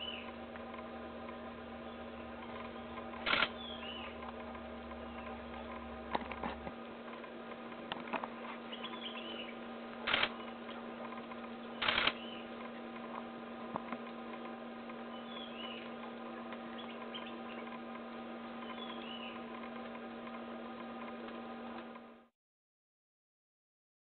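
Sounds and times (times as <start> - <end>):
bird chirps: 0.0 - 0.3, 1.8 - 4.2, 8.7 - 9.6, 11.7 - 12.5, 15.1 - 16.0, 16.7 - 17.7, 18.6 - 19.4
low electrical hum: 0.0 - 22.3.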